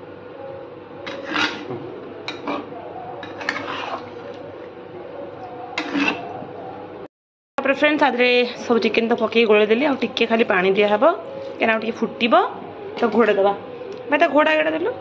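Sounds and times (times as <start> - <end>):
steady background hum: 0.0 - 15.0
spatula scraping a pan: 1.1 - 4.4, 5.8 - 6.3.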